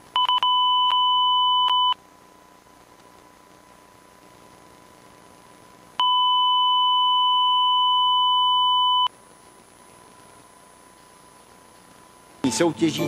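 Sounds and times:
faint tone hum: 0:00.0 - 0:13.0
loud single-pitch test tone beep: 0:00.2 - 0:02.0, 0:06.0 - 0:09.1.

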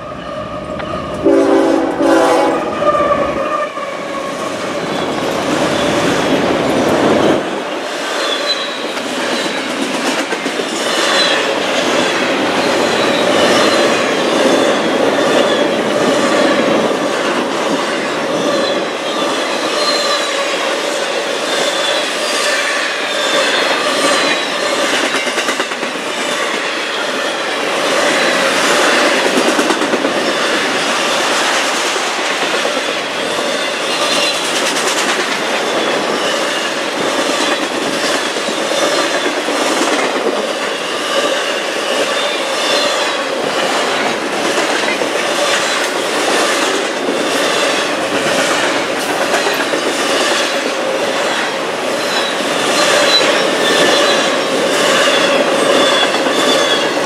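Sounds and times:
locomotive horn chord blast: 0:01.2 - 0:03.2
train wheels clattering over rail joints: 0:23.1 - 0:26.7, 0:28.0 - 0:57.0.

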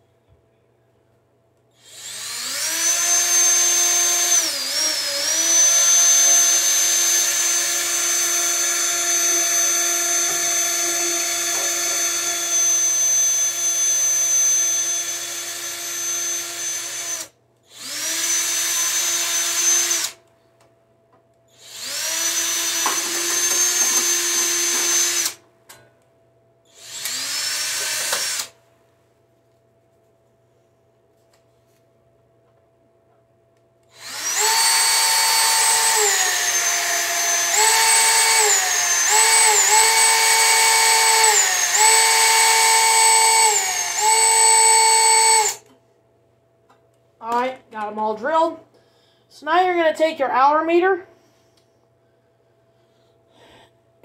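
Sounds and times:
cordless drill whining: 0:01.8 - 0:20.2, 0:21.6 - 0:25.4, 0:26.7 - 0:28.6, 0:33.9 - 0:45.7.

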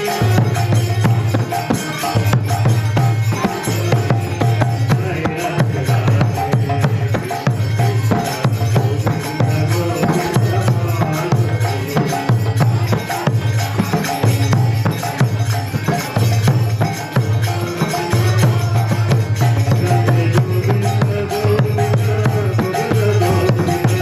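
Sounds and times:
jingling hand percussion: 0:00.0 - 0:24.0.

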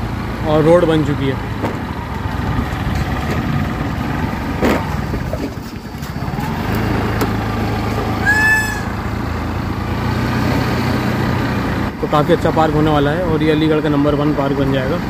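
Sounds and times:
engine hum with low rumble: 0:00.0 - 0:15.0
short high tone: 0:08.2 - 0:09.0.

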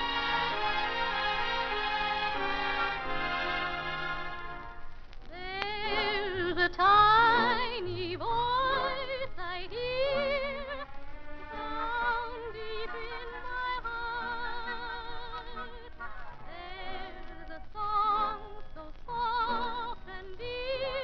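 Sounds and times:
orchestral music: 0:00.0 - 0:04.9
person singing with vibrato: 0:05.3 - 0:21.0.

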